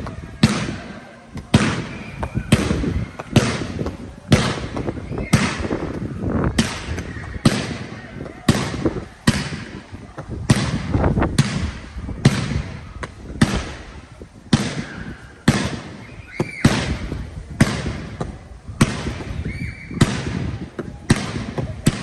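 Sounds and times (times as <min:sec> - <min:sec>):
fireworks bangs with echo: 0:00.0 - 0:22.0
firework whistles: 0:01.6 - 0:03.8, 0:04.4 - 0:05.9, 0:14.6 - 0:17.1, 0:19.0 - 0:20.5.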